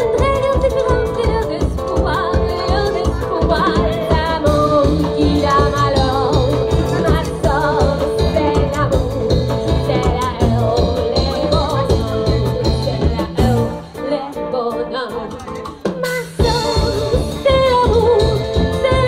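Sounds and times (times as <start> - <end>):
sousaphone bass line: 0.0 - 13.8
drum kit beat: 0.0 - 19.0
woman singing with vibrato: 0.0 - 19.0.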